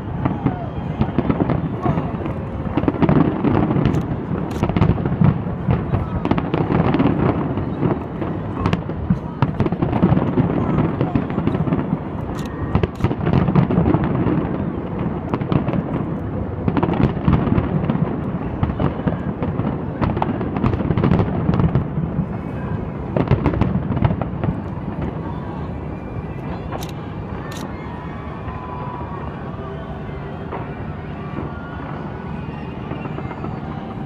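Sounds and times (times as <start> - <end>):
sharp firework cracks: 0.0 - 22.2
fireworks bangs and crackles: 0.0 - 34.0.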